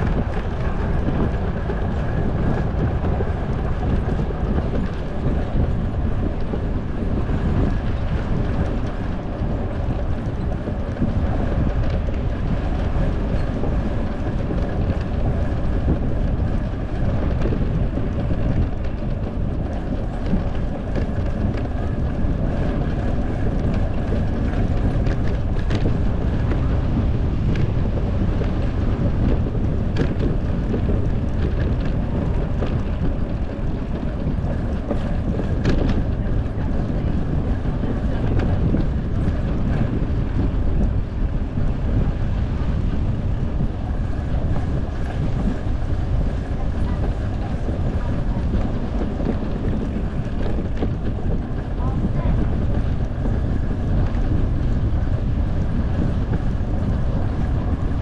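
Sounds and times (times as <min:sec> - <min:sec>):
road and tyre noise: 0:00.0 - 0:58.0
wind buffeting microphone: 0:00.0 - 0:58.0.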